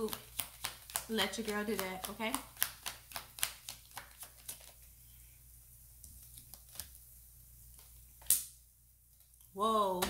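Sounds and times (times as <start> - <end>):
cards clicking in hands: 0.0 - 4.8.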